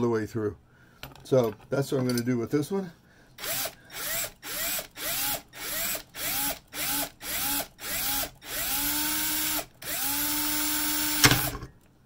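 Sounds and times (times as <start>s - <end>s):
cordless drill boring into brass: 3.4s - 11.7s.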